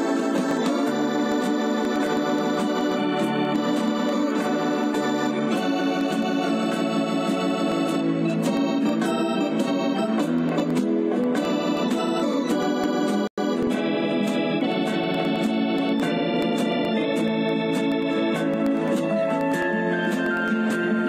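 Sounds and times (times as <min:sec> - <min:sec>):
slow organ chords: 0:00.0 - 0:19.2.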